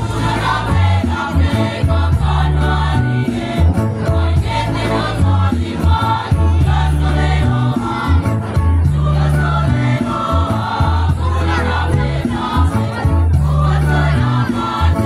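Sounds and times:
choir singing in parts: 0.0s - 15.0s
low bass notes: 0.0s - 15.0s.

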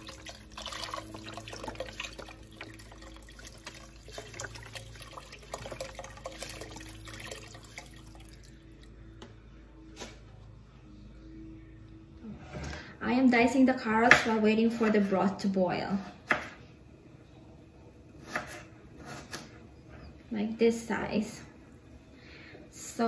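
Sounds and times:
broth pouring into pot: 0.0s - 8.9s.

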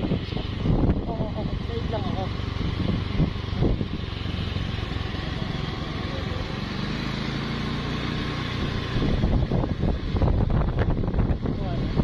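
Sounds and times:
motorcycle engine running: 0.0s - 12.0s.

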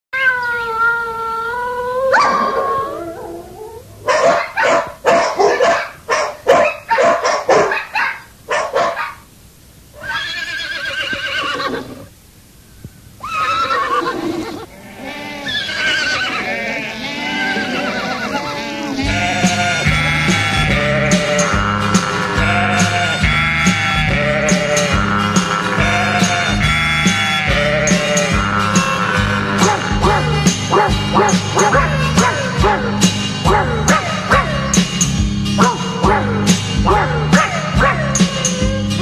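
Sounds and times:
dog barking: 2.1s - 2.8s, 4.0s - 9.3s, 29.6s - 34.6s, 35.6s - 38.2s.

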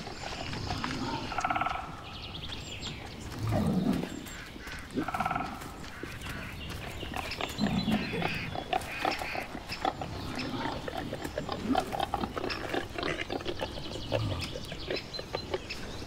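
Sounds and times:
rustling in undergrowth: 0.0s - 16.0s
wild boars grunting: 0.0s - 16.0s.

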